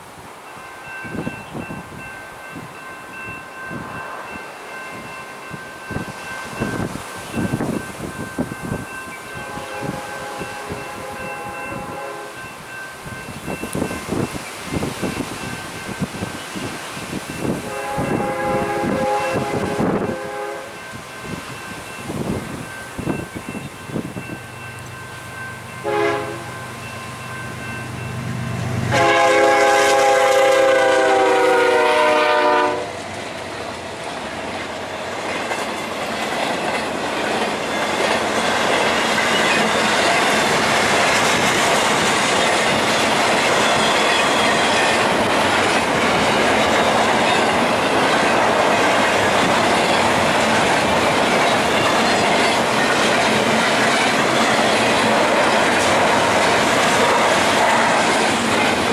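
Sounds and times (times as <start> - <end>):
train wheels clacking on rails: 0.8 - 58.9
locomotive air horn blasts: 9.3 - 12.4, 17.6 - 20.8, 25.8 - 26.6, 28.8 - 33.0.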